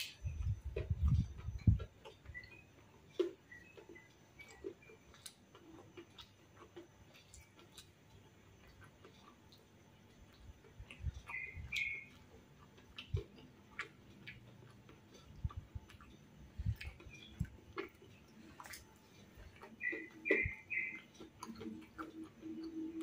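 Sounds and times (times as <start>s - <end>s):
crunchy chewing: 0.0s - 23.0s
wet mouth clicks: 8.6s - 23.0s.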